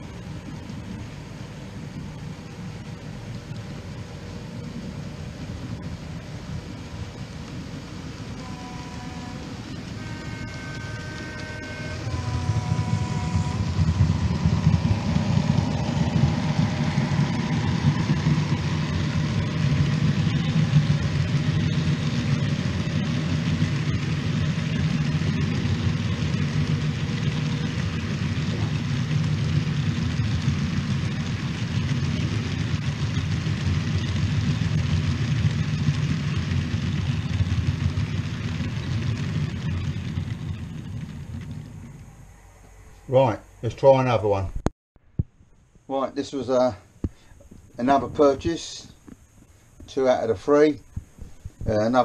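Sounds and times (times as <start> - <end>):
model train wheels rumbling on rails: 0.0 - 44.4, 47.4 - 52.0
engine-like drone: 0.0 - 45.3, 46.0 - 52.0.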